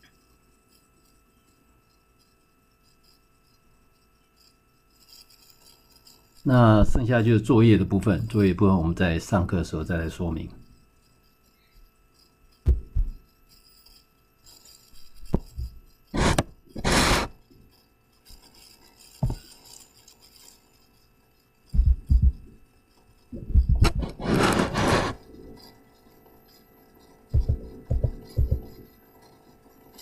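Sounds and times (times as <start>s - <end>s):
rubbing and scraping: 15.0s - 17.3s, 23.3s - 25.5s, 27.4s - 28.9s.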